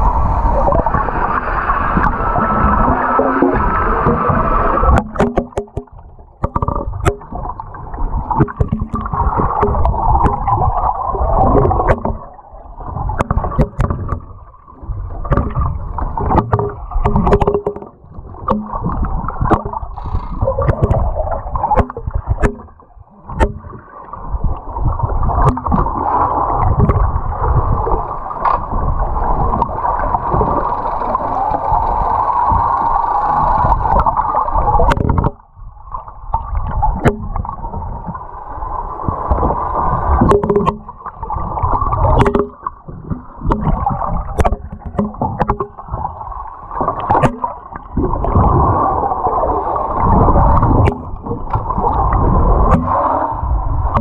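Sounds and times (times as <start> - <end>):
muffled water churning underwater: 0.0 - 54.0
sharp clicks and knocks: 3.2 - 7.6, 8.4 - 10.6, 11.6 - 12.3, 13.2 - 14.4, 15.2 - 23.8, 25.4 - 25.9, 34.8 - 35.4, 37.0 - 37.6, 40.2 - 41.0, 42.0 - 45.8, 46.8 - 47.8, 50.6 - 51.8, 52.7 - 53.0.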